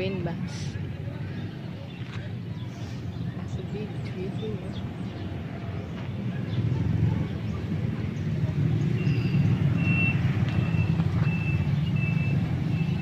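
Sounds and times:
heavy vehicle engine rumble: 0:00.0 - 0:13.0
reversing alarm beeping: 0:09.0 - 0:13.0.

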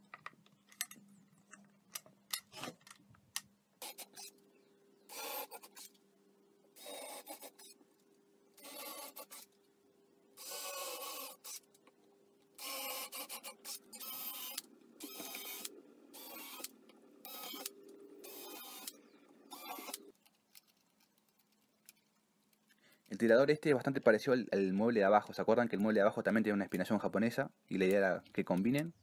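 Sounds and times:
cordless drill boring into wood: 0:12.6 - 0:20.0.

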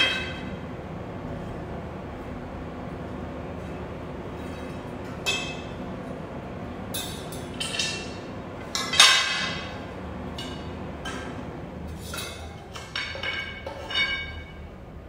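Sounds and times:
metal tubes knocking and clinking: 0:12.1 - 0:14.6.

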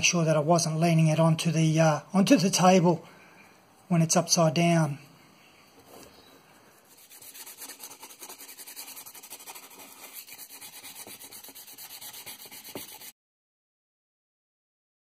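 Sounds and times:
sandpaper rubbing on wood: 0:06.9 - 0:13.2.

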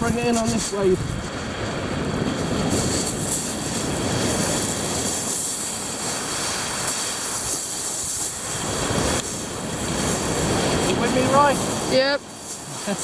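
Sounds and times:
waves washing over shingle: 0:00.0 - 0:13.0.

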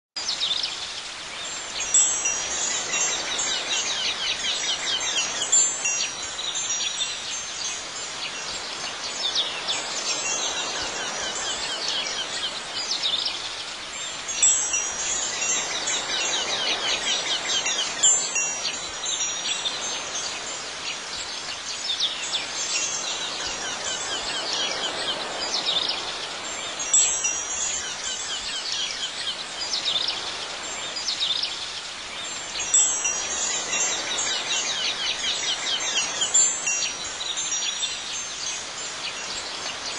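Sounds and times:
wind chimes tinkling: 0:01.4 - 0:39.9.

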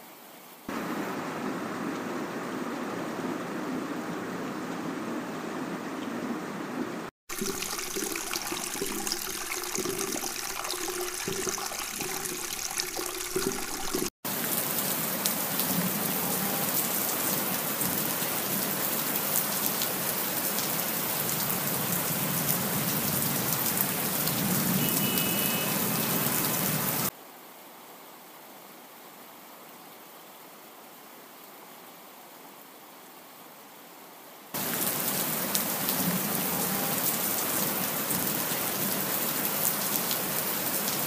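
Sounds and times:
rain-like hiss with crackling: 0:00.0 - 0:41.0.

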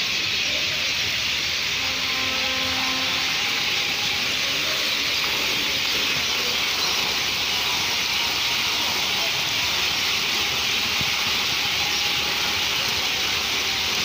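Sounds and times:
fountain water jets splashing: 0:00.0 - 0:14.0.

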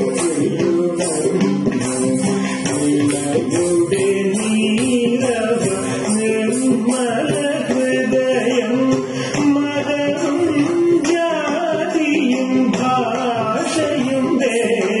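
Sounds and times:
percussion beat: 0:00.0 - 0:15.0
person singing: 0:00.0 - 0:15.0.

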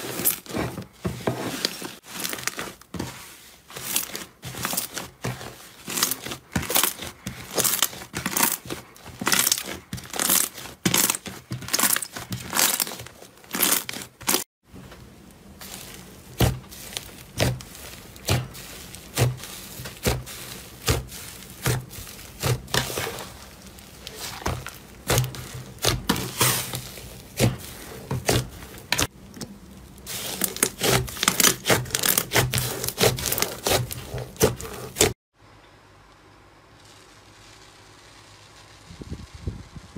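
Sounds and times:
slime crackling and popping: 0:03.8 - 0:14.4, 0:15.6 - 0:35.1.

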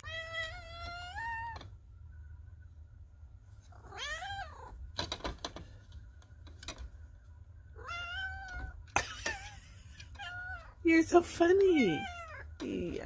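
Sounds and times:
cat meowing: 0:00.0 - 0:01.6, 0:03.8 - 0:04.8, 0:07.8 - 0:08.8, 0:10.1 - 0:10.8, 0:11.8 - 0:12.5.

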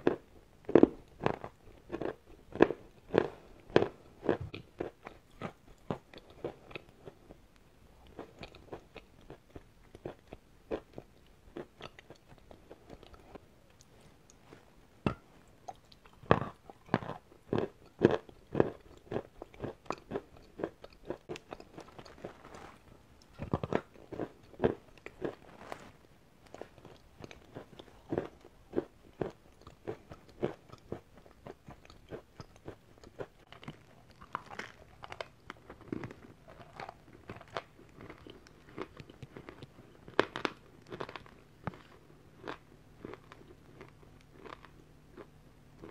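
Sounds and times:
chalk crunching and chewing: 0:00.0 - 0:07.4, 0:08.0 - 0:14.7, 0:15.6 - 0:45.9.

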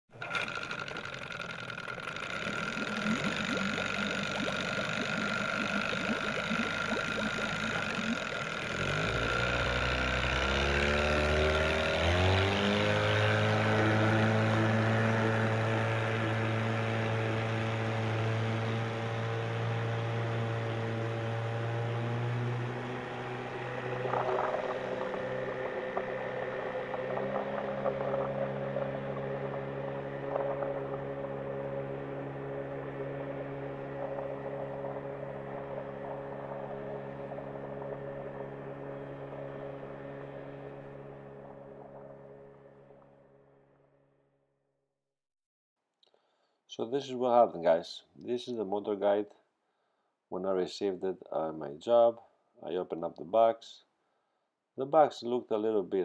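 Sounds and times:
motor humming: 0:00.1 - 0:43.7.

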